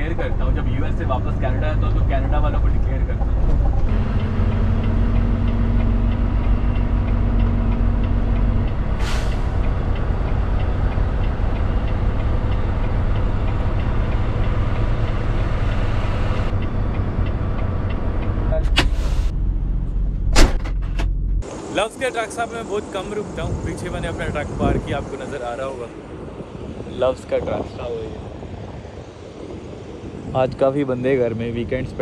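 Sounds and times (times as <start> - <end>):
diesel truck engine rumble: 0.0 - 32.0
hiss of air: 9.0 - 9.6.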